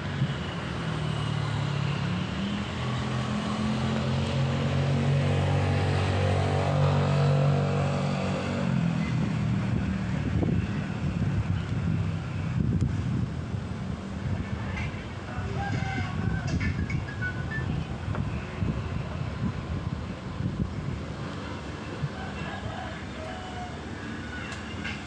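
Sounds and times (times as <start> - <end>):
moving train noise: 0.0 - 25.0
train diesel engine droning: 16.5 - 25.0.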